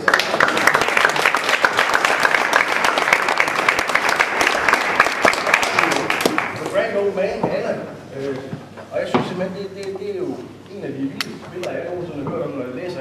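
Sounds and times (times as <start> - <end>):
people applauding: 0.0 - 6.8.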